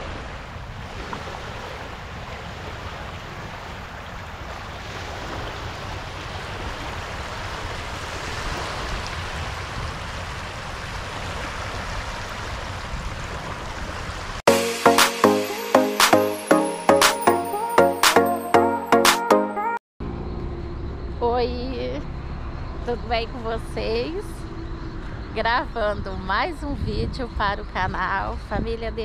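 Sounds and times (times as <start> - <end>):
wind buffeting microphone: 0.0 - 14.4, 22.6 - 29.0.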